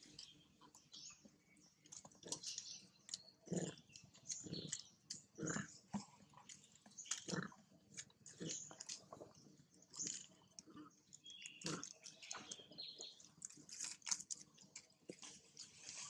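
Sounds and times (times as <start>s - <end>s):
small clicks and rustles: 5.9s - 16.0s.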